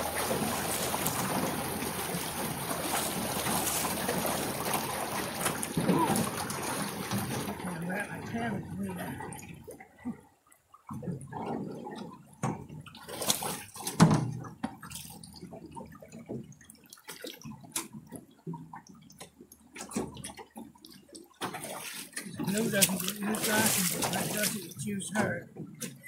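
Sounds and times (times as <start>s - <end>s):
river water splashing: 0.0s - 26.0s
knocks and thumps: 13.9s - 14.8s.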